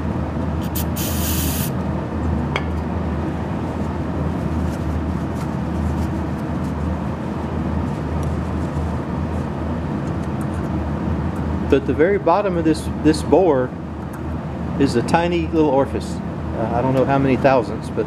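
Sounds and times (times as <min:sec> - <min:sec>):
steady low hum: 0:00.0 - 0:18.0
aerosol spray burst: 0:00.6 - 0:01.7.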